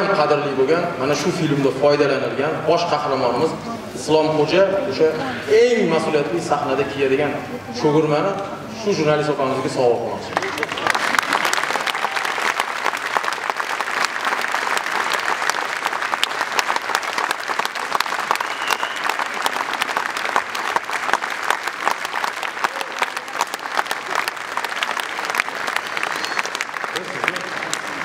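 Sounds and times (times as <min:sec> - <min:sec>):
crowd applauding: 0:10.2 - 0:28.0.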